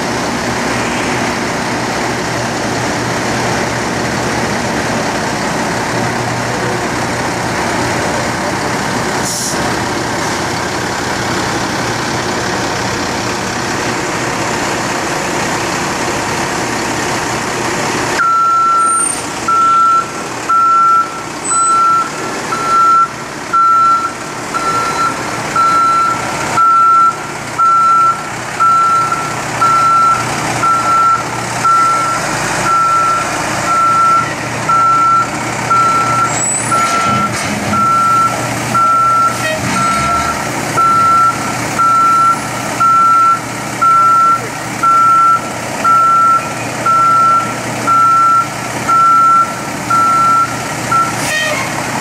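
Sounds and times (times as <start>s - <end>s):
heavy diesel equipment running: 0.0s - 52.0s
backup warning beeper: 18.2s - 51.3s.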